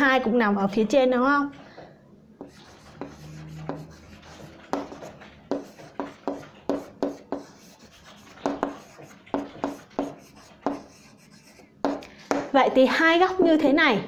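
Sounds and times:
writing tool taps and strokes: 2.4 - 12.5.

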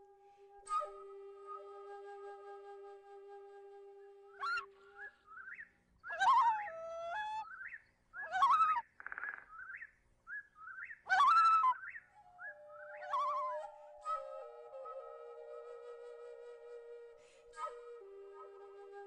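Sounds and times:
flute note: 0.0 - 5.1, 12.2 - 19.0
bird-like chirps and whistles: 4.3 - 17.8.

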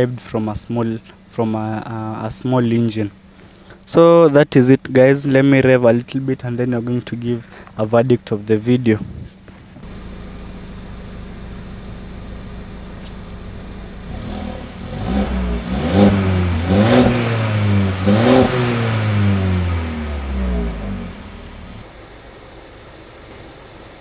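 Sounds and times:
car engine idling and revving: 9.4 - 24.0.

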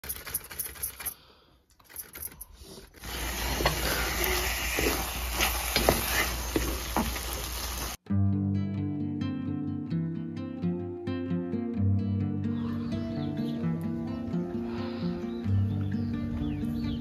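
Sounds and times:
carrot sizzling in a pan: 3.0 - 8.0
guitar-like music: 8.0 - 17.0.

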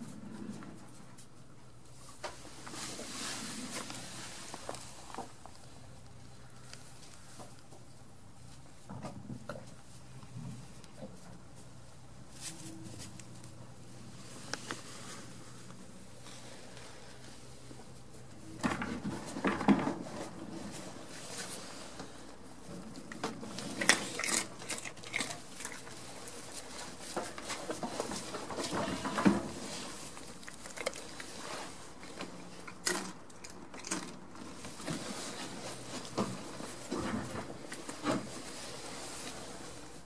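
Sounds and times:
rustling straw: 1.9 - 7.4, 11.6 - 18.5, 20.0 - 32.5, 34.4 - 40.0.

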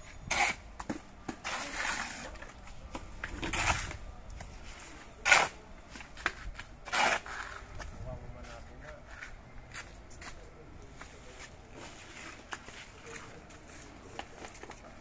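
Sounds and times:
shovel scraping wet mortar: 0.2 - 0.6, 1.4 - 2.5, 3.3 - 4.0, 5.2 - 5.6, 6.8 - 7.6.

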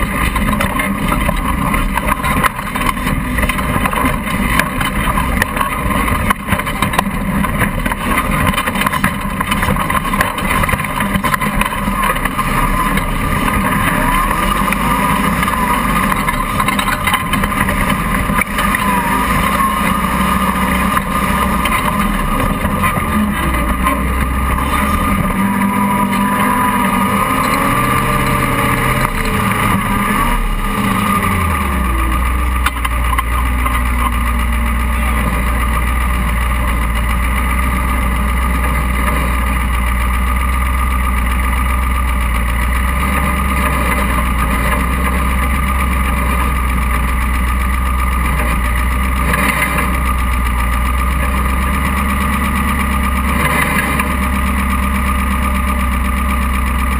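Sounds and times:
chassis knocks: 0.0 - 37.3
buggy engine revving: 0.0 - 56.9.

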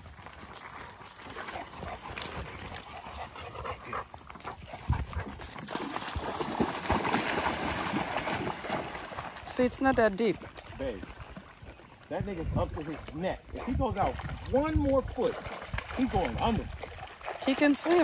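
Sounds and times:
dog splashing in water: 4.4 - 11.9, 12.7 - 18.0.

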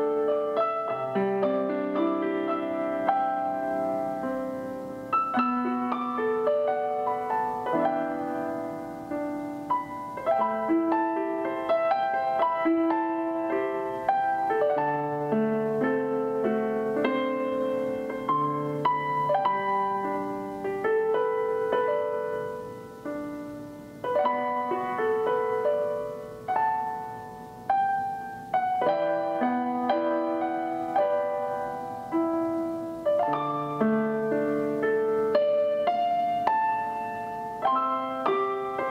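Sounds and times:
gentle piano music: 0.0 - 38.9.

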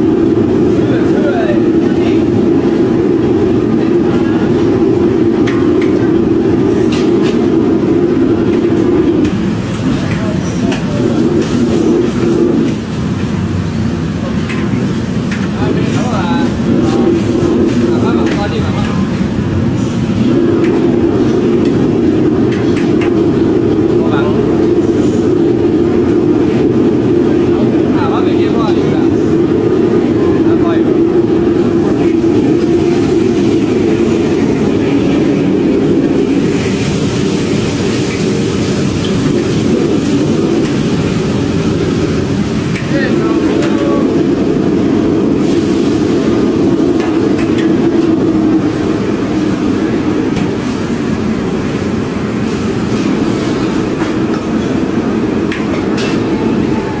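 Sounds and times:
gas burners and extractor rumble: 0.0 - 57.0.

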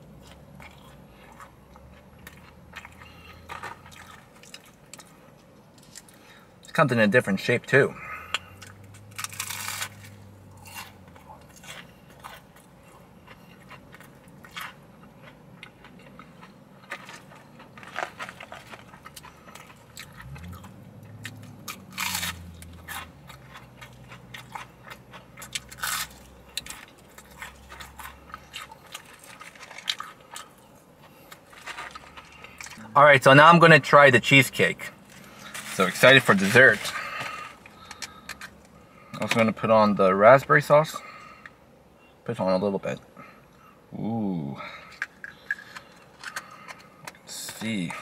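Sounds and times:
crunchy chewing of fried fish: 0.0 - 6.6, 8.0 - 32.8, 35.0 - 39.3, 44.8 - 48.0.

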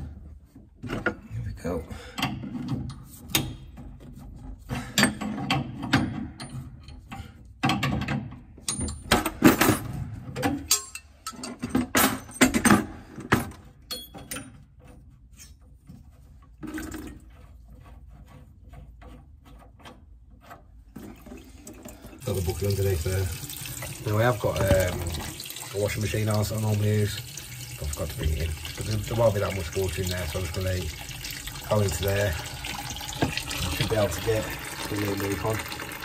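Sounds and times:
metal tools clicking on pipe fittings: 2.1 - 3.8, 4.9 - 9.4, 10.4 - 12.8, 13.8 - 14.8.

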